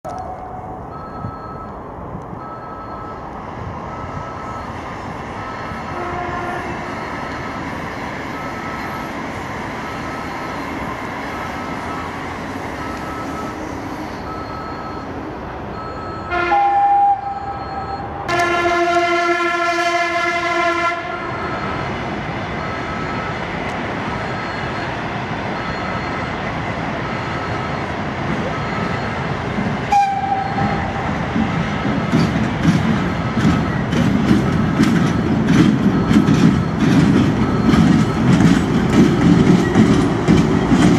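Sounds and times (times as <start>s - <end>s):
level-crossing warning beeps: 0.1s - 18.7s, 21.2s - 40.9s
train rumbling: 0.1s - 40.9s
train horn: 5.9s - 7.0s, 16.2s - 17.5s, 18.3s - 21.4s, 29.9s - 31.0s.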